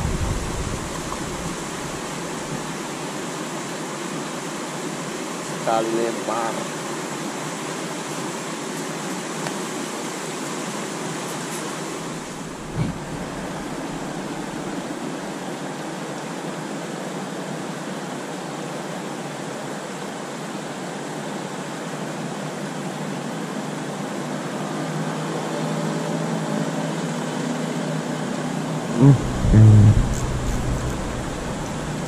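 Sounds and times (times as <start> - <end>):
low thump: 12.6 - 14.1, 29.0 - 32.0.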